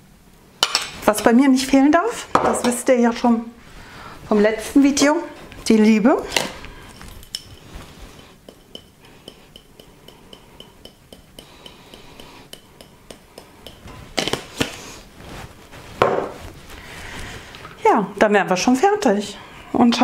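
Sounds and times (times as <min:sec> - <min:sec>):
dishes and cutlery clinking: 0:06.3 - 0:14.4.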